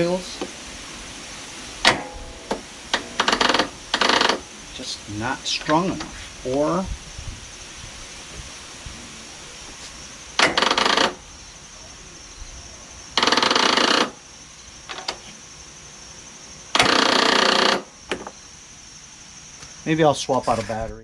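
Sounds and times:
engine starter rattling: 0:01.8 - 0:04.5, 0:10.4 - 0:11.2, 0:13.2 - 0:14.2, 0:16.8 - 0:17.9.

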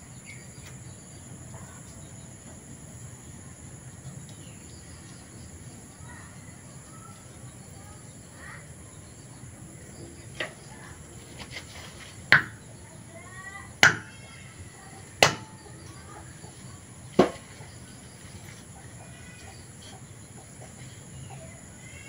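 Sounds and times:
machete knocking on stone: 0:12.3 - 0:12.6, 0:13.8 - 0:14.1, 0:15.2 - 0:15.5, 0:17.2 - 0:17.4.

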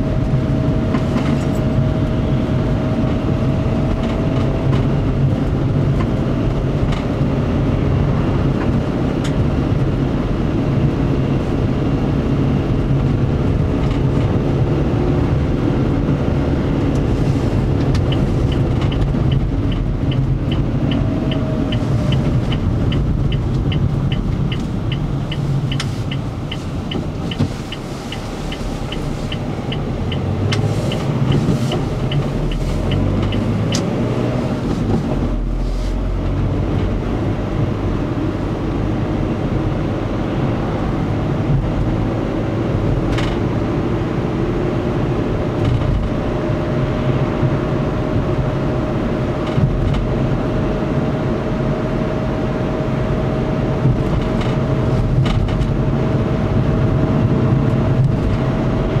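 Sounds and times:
car engine and road noise: 0:00.0 - 0:59.0
turn signal ticking: 0:12.8 - 0:43.7, 0:53.6 - 0:59.0.

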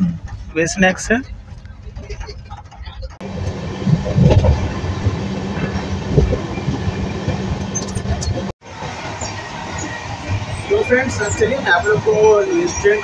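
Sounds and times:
train hum: 0:00.0 - 0:13.0
wheels rumbling on rails: 0:00.0 - 0:13.0
heavy wheel knocks: 0:01.2 - 0:08.5.

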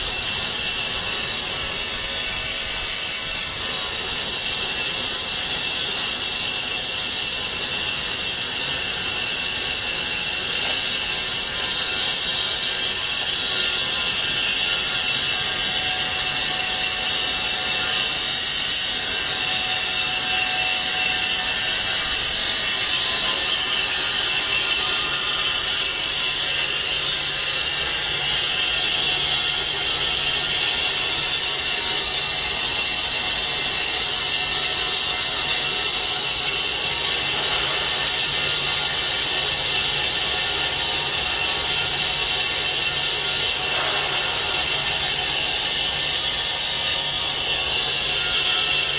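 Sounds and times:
band-knife foam cutting machine: 0:00.0 - 0:48.9.

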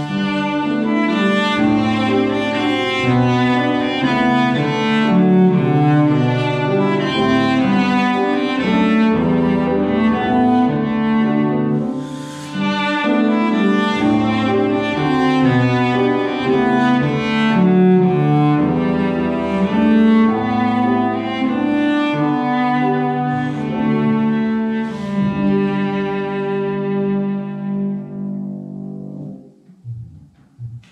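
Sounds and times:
bowed cello melody: 0:00.0 - 0:30.9
grand piano accompaniment: 0:00.0 - 0:30.9.

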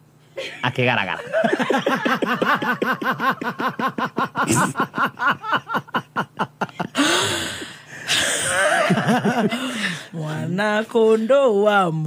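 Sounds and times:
woman laughing: 0:01.2 - 0:07.0, 0:08.5 - 0:09.6
woman gasping for breath: 0:07.0 - 0:08.6.

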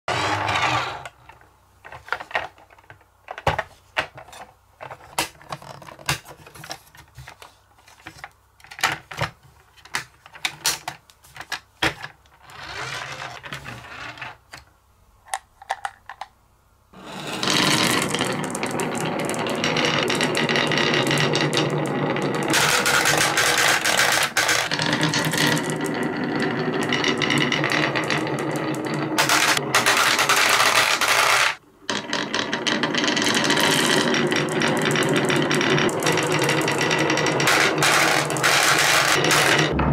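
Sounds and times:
marbles clattering down wooden slope: 0:17.1 - 0:39.9
plastic toy clicks and knocks: 0:29.2 - 0:31.6, 0:37.4 - 0:39.7.

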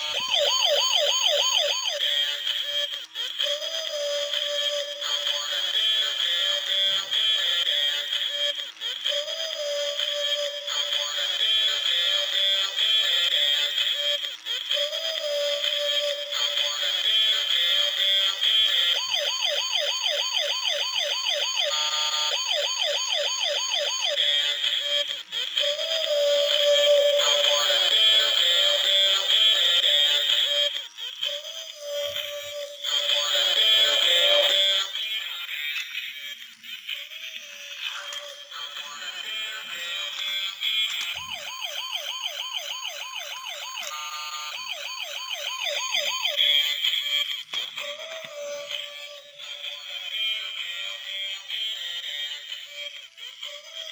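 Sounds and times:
electronic siren warble: 0:00.0 - 0:02.0, 0:25.6 - 0:29.7, 0:31.4 - 0:34.8
siren yelp: 0:00.0 - 0:07.6, 0:14.8 - 0:35.0, 0:41.1 - 0:50.2
music: 0:00.0 - 0:53.9.

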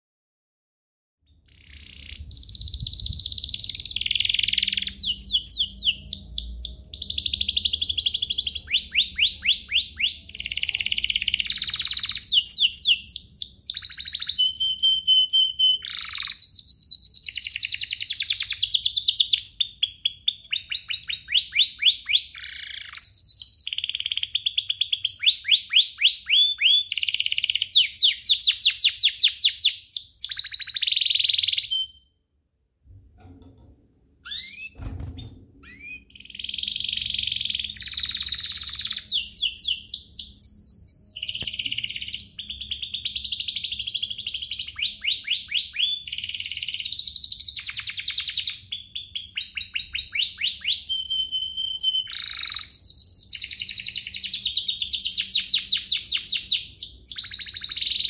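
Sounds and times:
canary singing trills: 0:01.3 - 0:32.1, 0:34.2 - 0:58.0.

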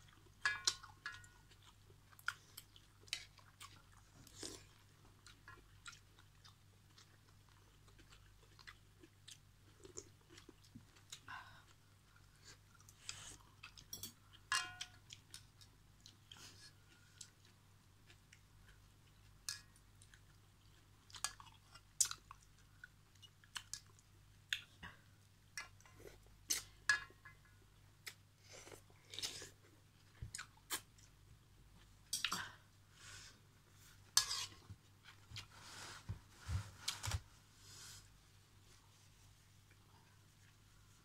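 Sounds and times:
chewing noodles and vegetables: 0:00.0 - 0:26.8, 0:28.0 - 0:32.6.

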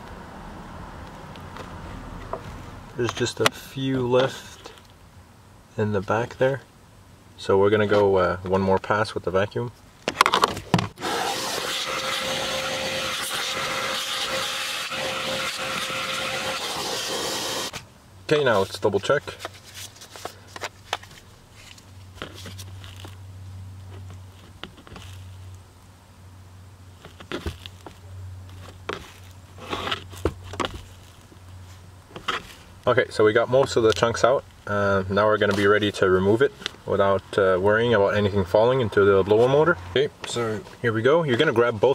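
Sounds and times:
vacuum cleaner running: 0:11.0 - 0:17.7
dry leaves and filter crackling: 0:17.7 - 0:25.9, 0:26.9 - 0:32.9.

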